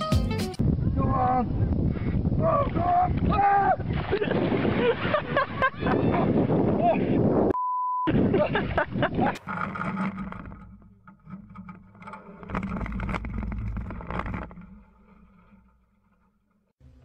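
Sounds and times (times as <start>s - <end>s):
water splashing: 2.6s - 5.9s.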